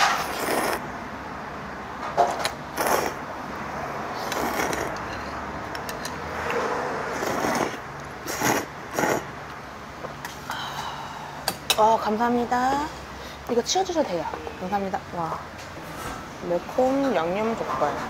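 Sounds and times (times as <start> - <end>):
noodles being slurped: 0.0 - 0.8, 2.7 - 3.2, 4.2 - 5.1, 7.1 - 9.3.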